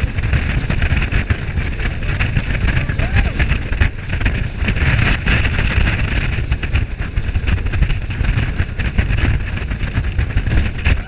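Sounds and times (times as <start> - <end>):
speedboat engine rumble: 0.0 - 11.0
wind on microphone: 0.0 - 11.0.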